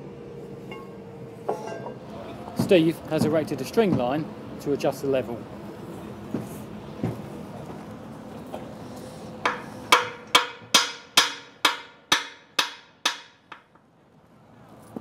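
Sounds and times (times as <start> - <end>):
hammer tapping metal frame: 9.4 - 13.9.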